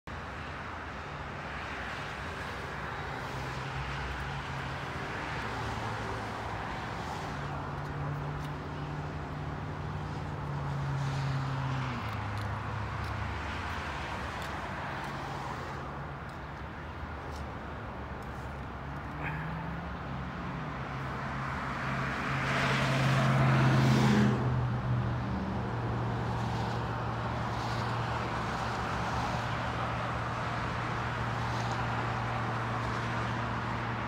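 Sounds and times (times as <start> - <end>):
outdoor noise: 0.0 - 34.0.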